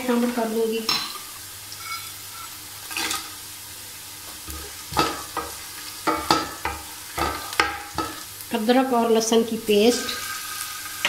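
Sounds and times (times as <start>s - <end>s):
onions sizzling in hot oil: 0.0s - 11.0s
wooden spoon knocking pan: 4.5s - 8.2s.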